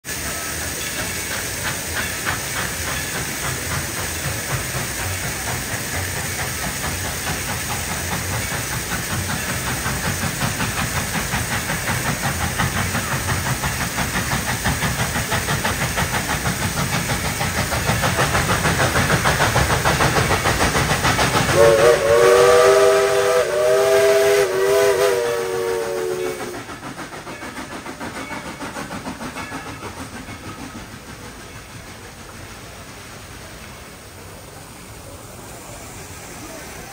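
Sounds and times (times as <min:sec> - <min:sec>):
steam locomotive chuffing: 0:00.0 - 0:36.9
steam locomotive chime whistle: 0:21.5 - 0:31.0.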